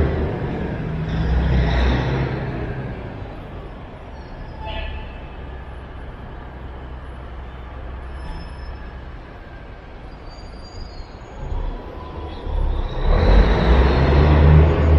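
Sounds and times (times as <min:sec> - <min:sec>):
vehicle approaching: 0:00.0 - 0:04.5, 0:11.2 - 0:14.9
low rumble of traffic: 0:00.0 - 0:14.9.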